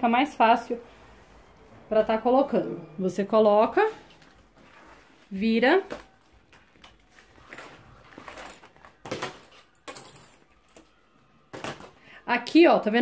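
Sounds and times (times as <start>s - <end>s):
leather and plastic sheet rustling: 3.8s - 10.5s.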